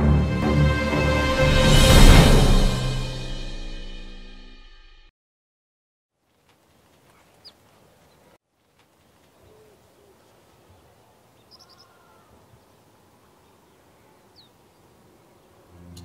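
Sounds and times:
low cooing: 9.4s - 12.6s
high bird chirps: 11.4s - 12.2s.

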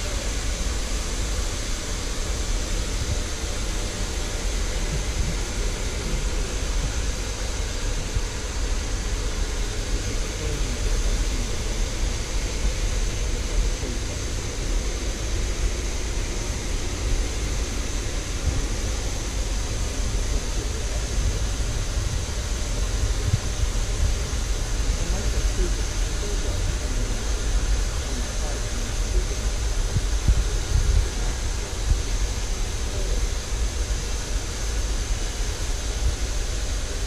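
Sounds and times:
steam hissing: 0.0s - 37.0s.

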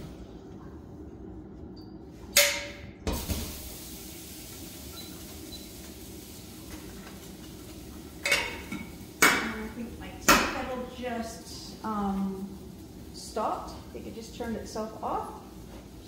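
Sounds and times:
kettle hissing: 3.2s - 16.0s
pots clinking and clanking: 6.6s - 10.8s.

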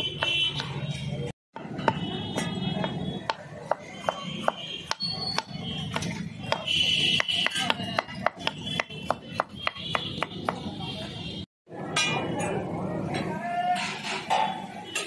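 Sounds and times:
knife chopping on wooden board: 2.8s - 10.6s.

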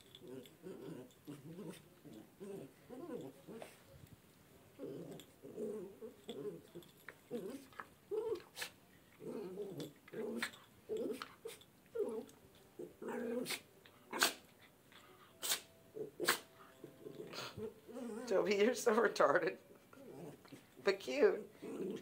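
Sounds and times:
dog rolling on carpet: 0.0s - 3.8s
small dog growling: 0.0s - 3.9s, 4.8s - 14.4s, 15.4s - 18.7s, 19.9s - 22.0s
dog sneezing: 8.5s - 8.8s, 13.4s - 14.4s, 15.4s - 16.5s.

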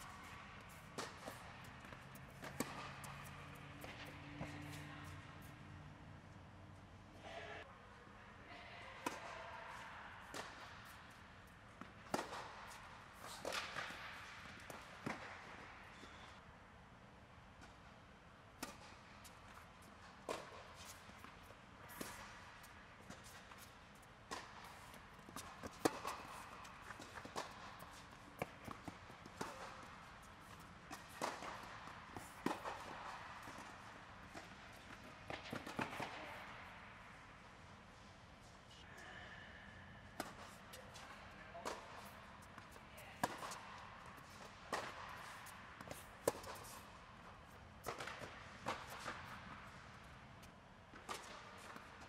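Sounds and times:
tennis ball bouncing on court: 0.0s - 5.6s, 9.0s - 11.2s, 11.8s - 16.2s, 18.6s - 36.8s, 40.1s - 52.0s
tennis ball hit by rackets: 0.0s - 5.6s, 9.0s - 11.2s, 11.8s - 16.0s, 20.3s - 21.3s, 21.9s - 22.4s, 23.0s - 36.8s, 40.1s - 46.9s, 47.8s - 49.9s, 50.9s - 52.0s.

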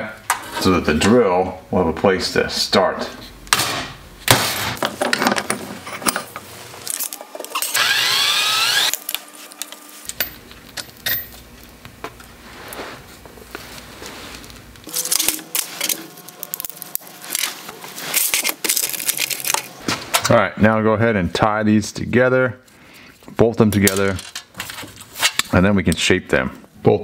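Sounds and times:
small metal parts clinking: 14.9s - 17.5s, 18.1s - 19.8s, 23.8s - 24.8s.

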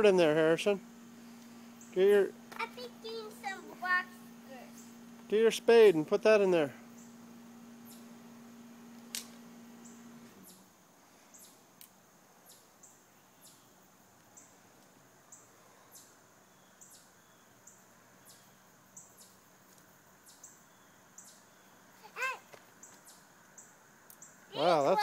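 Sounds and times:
steady low hum: 0.0s - 25.0s
high wildlife chirps: 0.8s - 5.1s, 6.8s - 8.4s, 9.7s - 11.7s, 12.4s - 19.6s, 20.2s - 25.0s.

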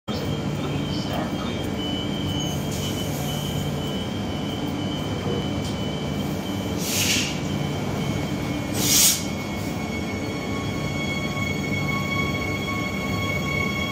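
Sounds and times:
train equipment humming: 0.1s - 13.9s
train doors closing: 0.6s - 13.9s
air hiss bursts: 6.8s - 7.4s, 8.8s - 9.3s.

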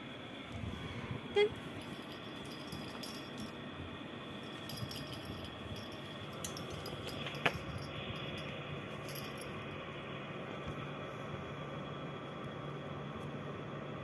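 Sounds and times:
low background hum: 0.0s - 14.0s
collar bell jingling: 1.6s - 3.6s, 4.4s - 9.8s.

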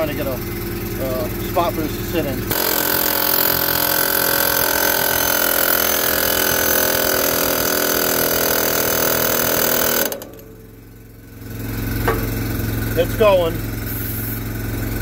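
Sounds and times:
air hammer pounding metal: 2.5s - 10.9s, 12.0s - 12.8s.

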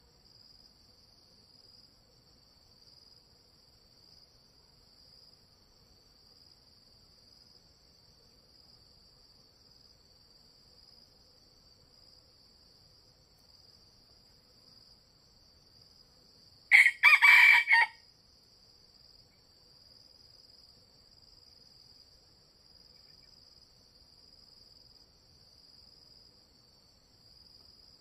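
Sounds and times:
high drone of insects: 0.0s - 28.0s
rooster crowing: 16.7s - 18.0s.

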